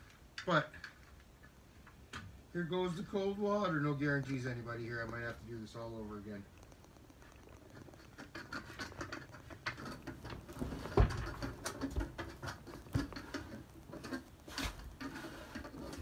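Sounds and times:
plastic strip scraping and creaking: 4.1 - 16.0.

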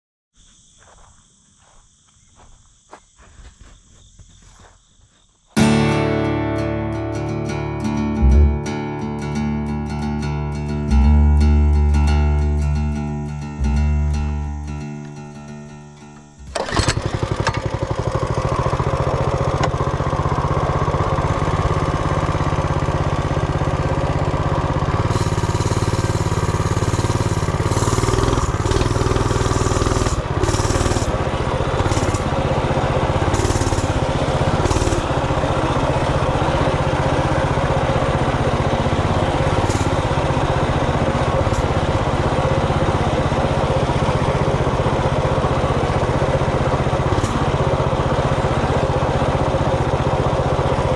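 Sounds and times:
minibike engine running: 10.9 - 50.9.

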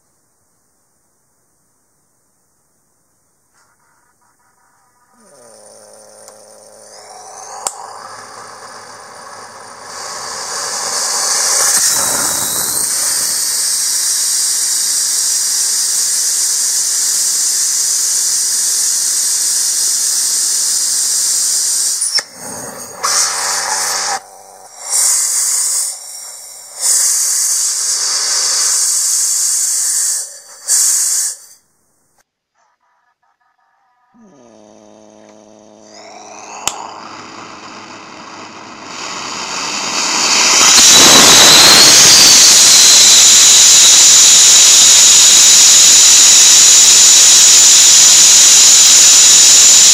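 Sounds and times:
rocket engine gas hiss: 5.0 - 31.6, 35.9 - 49.9
rising whistle: 6.2 - 31.6, 35.9 - 49.9.

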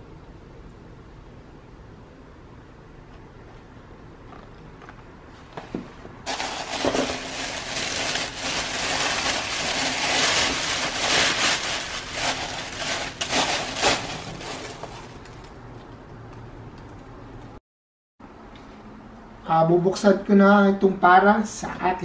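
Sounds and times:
tissue paper crinkling: 6.3 - 15.5.

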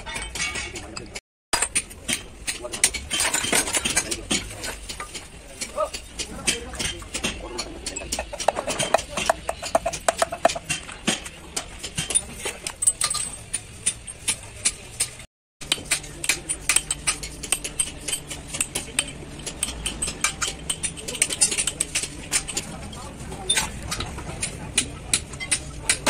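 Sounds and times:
hammer knocking on steel: 6.9 - 10.7.

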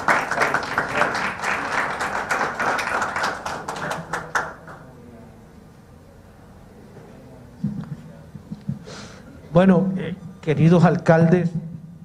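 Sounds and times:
people applauding: 0.0 - 4.9.

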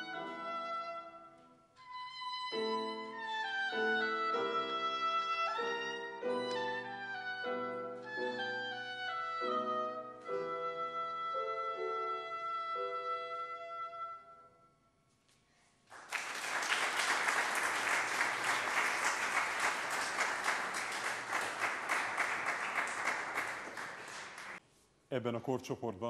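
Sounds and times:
piano: 0.0 - 14.6, 16.2 - 24.6
oboe: 0.0 - 14.7
audience applause: 15.9 - 24.6.

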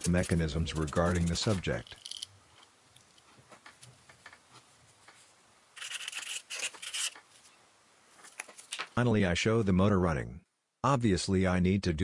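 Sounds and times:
faint taps and rustles: 2.6 - 5.3
marker scratching on paper: 5.8 - 7.2.

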